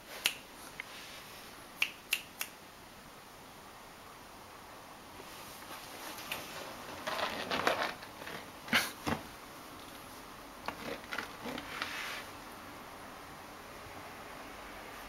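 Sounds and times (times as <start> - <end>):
fingers snapping: 0.2 - 0.4, 1.8 - 2.6.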